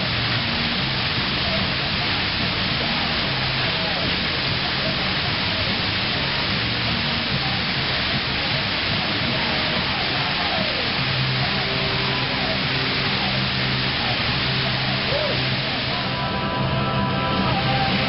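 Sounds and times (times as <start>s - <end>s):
faint voices: 0.0s - 18.0s.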